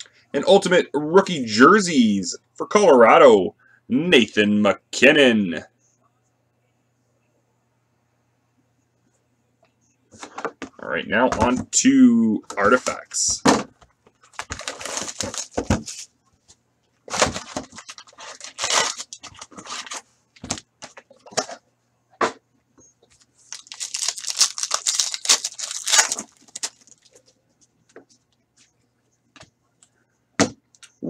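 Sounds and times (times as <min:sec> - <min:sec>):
foil pack ripping: 0:14.4 - 0:15.6, 0:17.1 - 0:20.0, 0:23.5 - 0:27.1.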